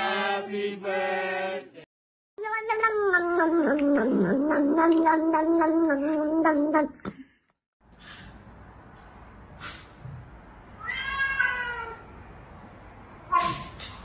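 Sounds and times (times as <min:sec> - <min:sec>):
kitten growling while chewing: 0:02.5 - 0:06.8
cat meowing: 0:10.8 - 0:12.0.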